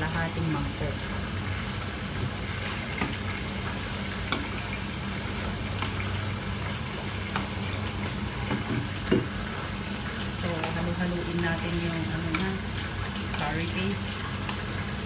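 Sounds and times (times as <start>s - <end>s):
food hissing in a pot: 12.8s - 15.0s.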